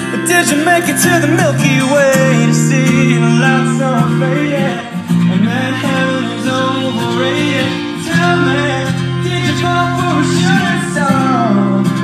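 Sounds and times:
pop-rock song over loudspeakers: 0.0 - 12.0.

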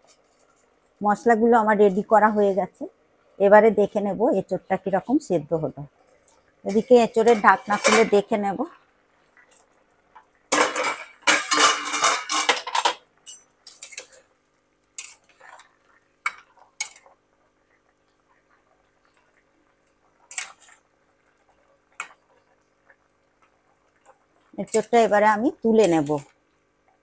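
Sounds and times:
pot lid clattering: 7.2 - 8.2, 10.5 - 13.4.

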